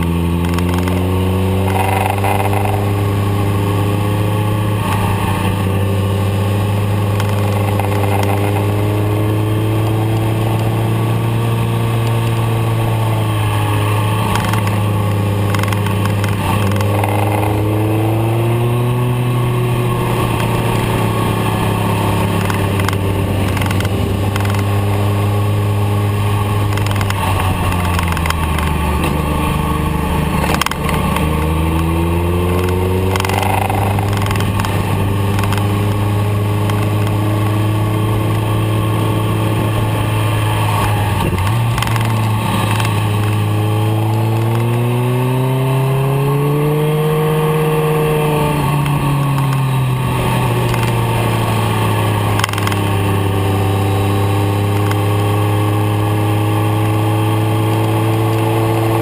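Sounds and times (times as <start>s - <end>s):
motorcycle engine revving: 0.0s - 59.0s
sharp click: 0.4s - 1.0s, 7.2s - 8.7s, 14.3s - 14.8s, 15.4s - 17.5s, 22.3s - 24.8s, 26.6s - 28.8s, 32.5s - 36.0s, 41.2s - 43.4s, 52.4s - 52.9s
wind noise: 0.4s - 55.5s.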